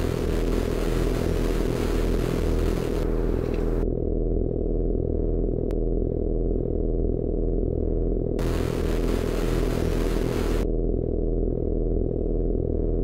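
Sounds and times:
tv static hiss: 0.0 - 3.0, 8.4 - 10.6
pulsing low rumble: 0.0 - 13.0.

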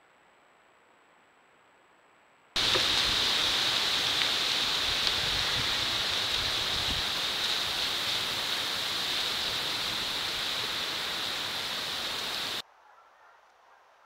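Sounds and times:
steady hiss with high-pitched band: 2.6 - 12.6.

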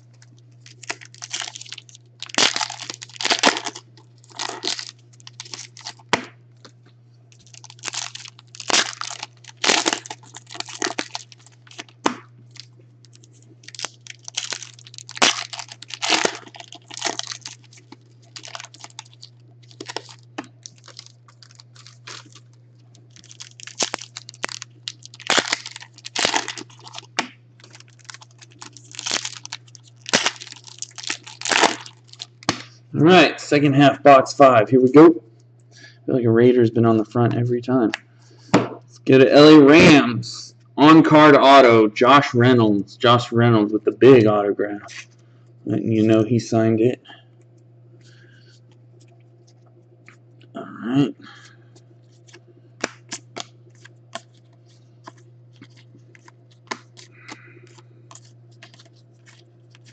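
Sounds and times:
foil wrappers crinkling and tearing: 0.0 - 6.7, 7.3 - 32.8, 51.3 - 59.9
faint low hum: 0.0 - 59.9.

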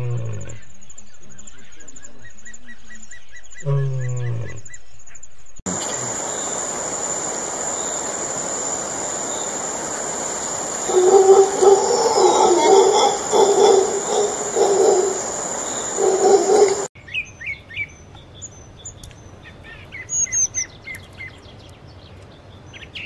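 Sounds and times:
howler monkey howling: 5.7 - 16.9
pulsing insect trill: 5.7 - 16.9
steady hiss of insects: 5.7 - 16.9
lion grunting call: 10.8 - 16.9.

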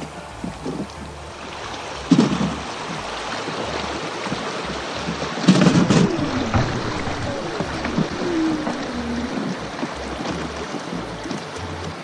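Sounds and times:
river water rushing and splashing: 0.0 - 12.0
low thumps: 5.4 - 10.4.

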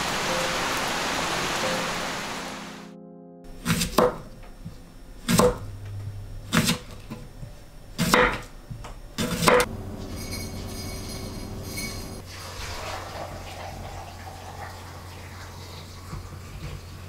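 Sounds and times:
knife chopping on cutting board: 3.6 - 4.3, 5.2 - 5.6, 6.5 - 7.2, 8.0 - 8.5, 9.2 - 9.7.

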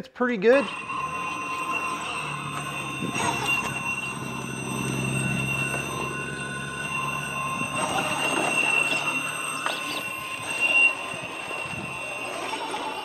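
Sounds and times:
electric motor whining: 0.6 - 13.0
tires scraping on stone: 0.6 - 13.0.

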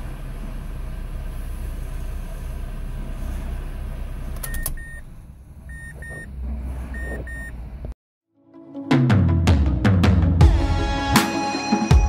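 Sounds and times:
car engine idling: 0.0 - 6.6
ignition switch click: 4.4 - 5.0.

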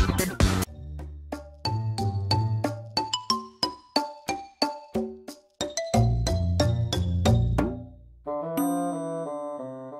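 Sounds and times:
electronic music with drum beat: 0.0 - 0.8.

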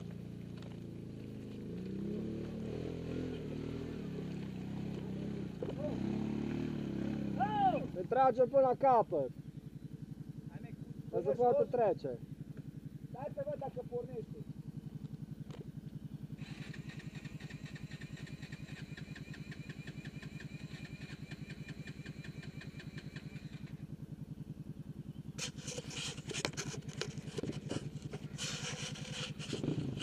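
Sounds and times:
engine idling: 0.0 - 2.1, 3.0 - 30.0
electric starter cranking: 16.4 - 23.7
rough crackly noise: 25.4 - 30.0.

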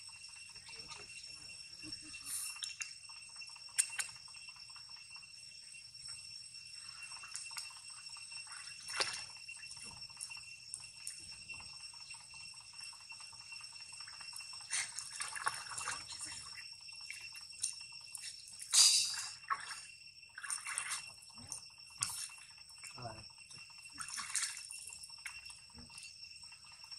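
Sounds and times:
water splashing: 8.4 - 10.0, 14.1 - 17.3, 18.2 - 23.0, 24.0 - 25.4.

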